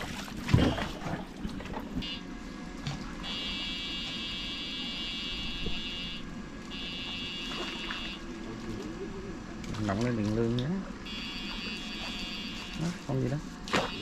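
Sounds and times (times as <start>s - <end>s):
high-pitched electric buzz: 3.2s - 8.3s, 11.0s - 14.0s.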